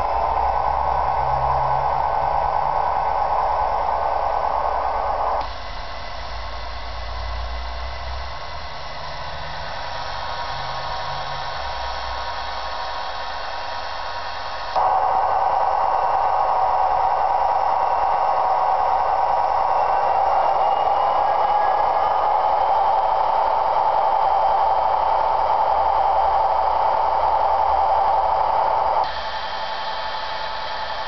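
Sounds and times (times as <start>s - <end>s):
diesel engine sound from speakers: 0.0s - 31.0s
thin hissy engine sound: 6.4s - 14.8s.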